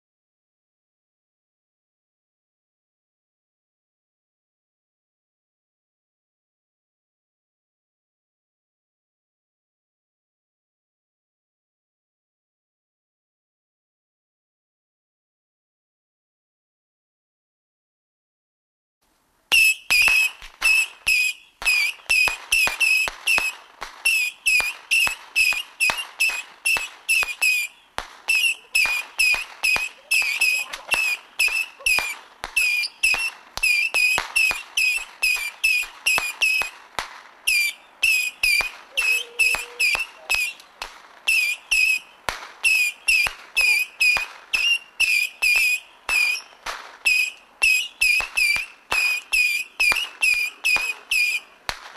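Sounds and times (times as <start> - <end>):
firework cracks: 19.5 - 51.9
firework whistles: 19.5 - 51.9.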